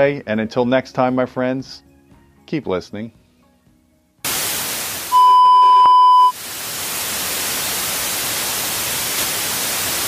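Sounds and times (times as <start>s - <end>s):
television static hiss: 4.3s - 5.3s, 6.2s - 10.0s
test tone beep: 5.1s - 6.4s.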